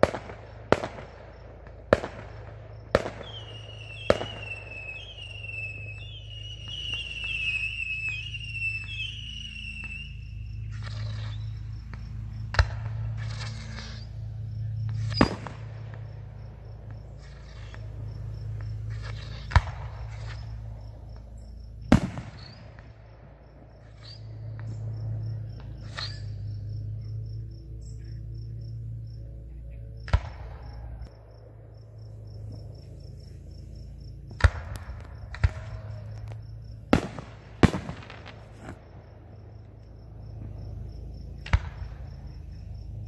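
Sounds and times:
whistling rocket: 0.0s - 16.2s, 16.9s - 26.9s, 34.3s - 39.2s
fireworks hiss and crackle: 0.0s - 24.8s, 34.3s - 40.5s
distant fireworks bangs: 0.0s - 27.0s, 30.0s - 43.0s
crickets chirping: 0.0s - 43.0s
steady low hum: 0.0s - 43.0s.

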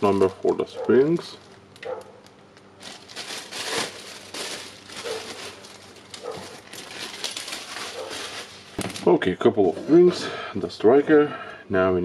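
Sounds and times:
plastic bag crinkling: 0.0s - 9.3s.

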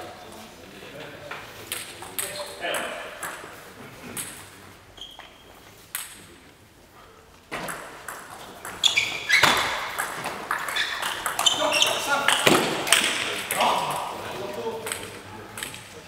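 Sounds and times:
table tennis balls clicking: 1.6s - 4.6s, 7.5s - 16.0s.

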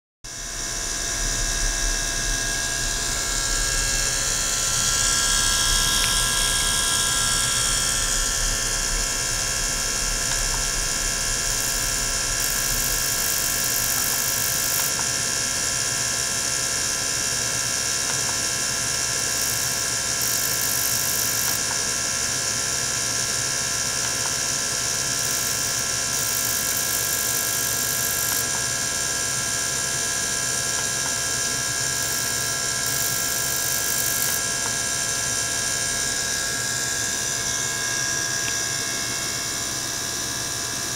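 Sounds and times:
low hum: 0.3s - 13.6s
electric pump humming: 0.3s - 40.9s.

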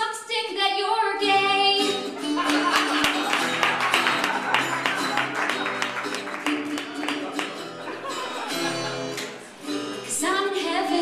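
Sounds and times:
person singing: 0.0s - 2.2s, 9.8s - 11.0s
acoustic guitar strumming: 1.2s - 11.0s.

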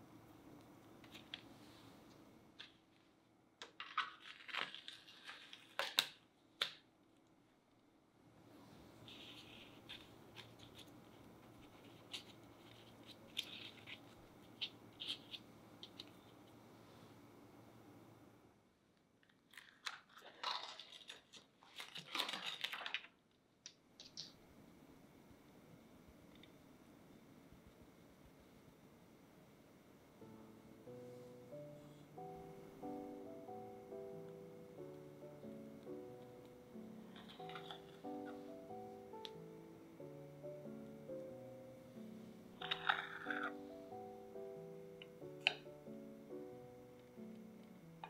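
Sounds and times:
plastic sheet crinkling: 3.6s - 6.8s, 9.0s - 16.4s, 19.2s - 23.3s.

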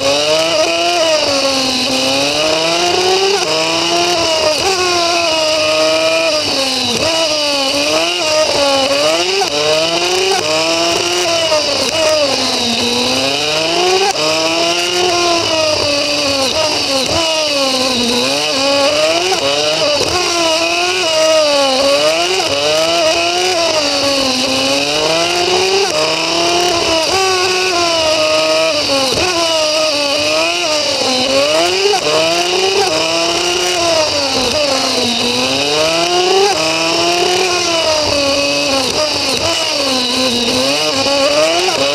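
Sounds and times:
motorcycle engine revving: 0.0s - 41.9s.

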